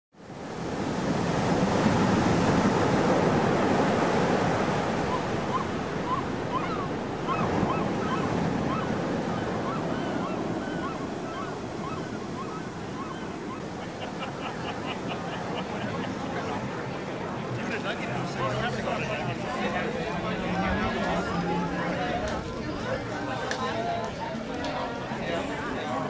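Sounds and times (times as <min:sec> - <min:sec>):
ocean surf washing: 0:00.2 - 0:23.4
gulls calling: 0:03.4 - 0:21.8.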